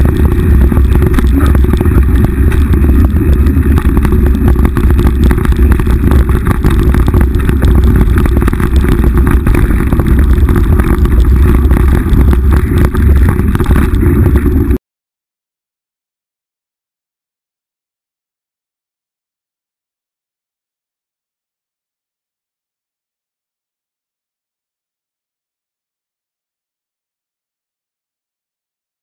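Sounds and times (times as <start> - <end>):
bike rattling and clattering: 0.0 - 14.8
wind rumble on microphone: 0.0 - 14.8.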